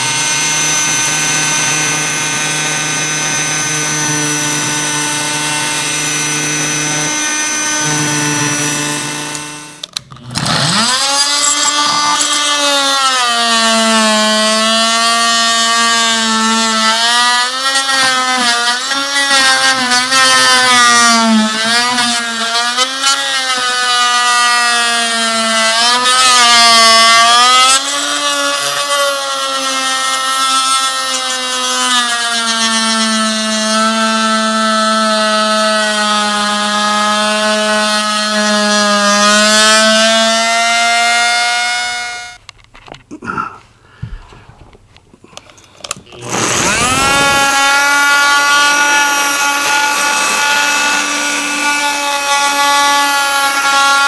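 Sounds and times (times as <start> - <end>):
power tool spinning against wall: 0.0 - 24.1, 45.6 - 54.0
power tool motor running: 0.0 - 42.4, 45.8 - 54.0.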